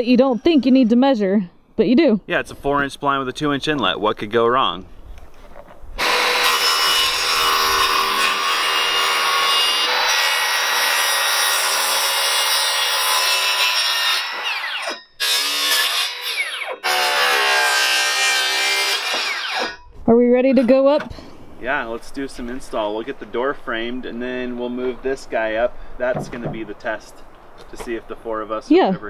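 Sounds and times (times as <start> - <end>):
circular saw cutting wood: 6.0 - 19.8.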